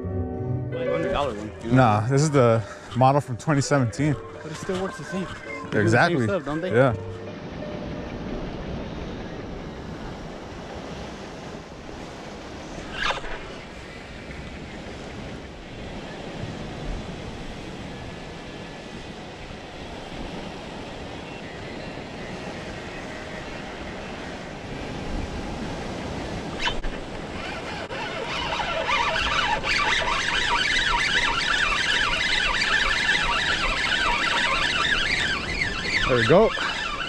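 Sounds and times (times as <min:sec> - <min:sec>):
high wavering squeals: 0:00.0 - 0:09.5, 0:26.5 - 0:37.0
wind on microphone: 0:00.9 - 0:37.0
surf washing against rocks: 0:09.7 - 0:37.0.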